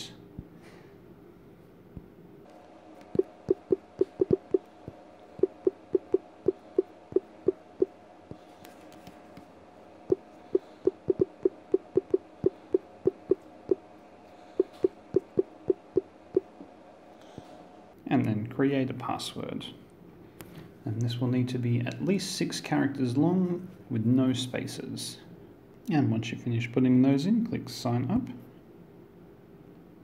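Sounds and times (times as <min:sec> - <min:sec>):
faint steady tone: 0:14.4 - 0:16.6.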